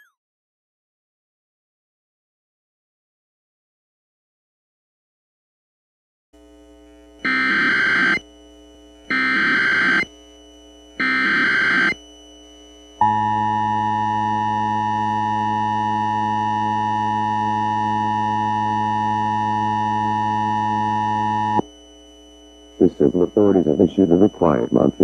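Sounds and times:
data tone bursts: 7.2 - 8.2, 9.1 - 10.1, 11.0 - 12.0, 13.0 - 25.0
two-tone attention signal: 13.0 - 21.6, 22.8 - 25.0.

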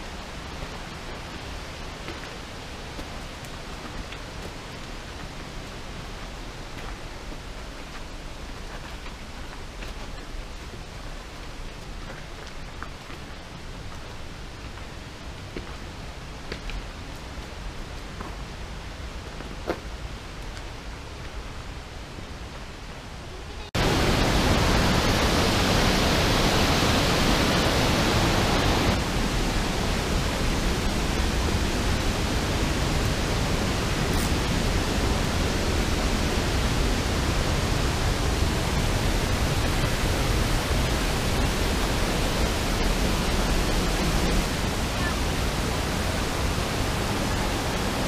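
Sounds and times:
loud rush of water: 0.0 - 19.3, 22.8 - 48.0.

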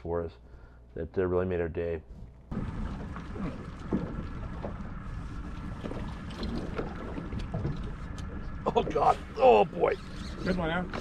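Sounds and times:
water noise: 2.2 - 11.0.

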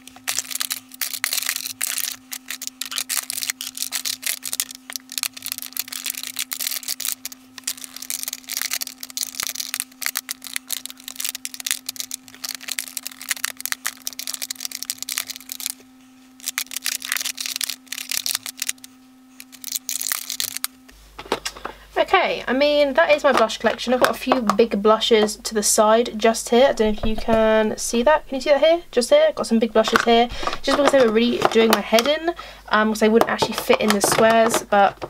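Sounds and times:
plastic compacts clicking and clattering: 0.0 - 15.8, 16.4 - 21.8, 23.3 - 25.3, 29.8 - 32.2, 33.0 - 35.0
steady low hum: 0.0 - 35.0.

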